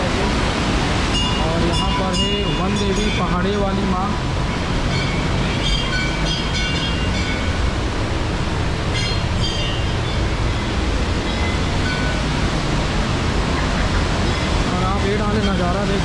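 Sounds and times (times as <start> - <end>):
waterfall roaring: 0.0 - 16.0
faint high ringing tones: 1.1 - 3.5, 4.9 - 7.7, 8.9 - 12.2.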